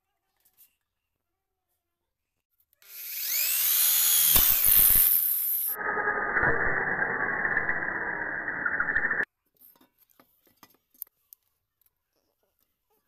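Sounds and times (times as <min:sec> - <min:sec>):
power tool motor whine: 0:02.8 - 0:09.2
hissing cutting noise: 0:02.9 - 0:09.2
muffled grinding noise: 0:03.0 - 0:09.2.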